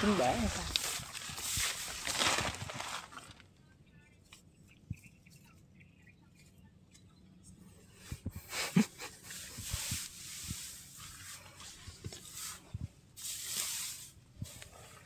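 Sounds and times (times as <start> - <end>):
straw rustling and crackling: 0.0 - 3.6.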